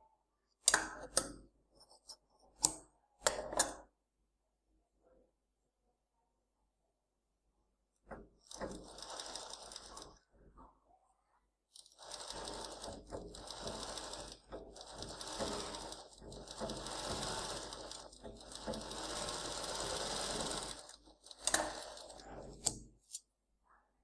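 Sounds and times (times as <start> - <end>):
sewing machine stitching fabric: 8.1 - 10.7, 11.7 - 23.2.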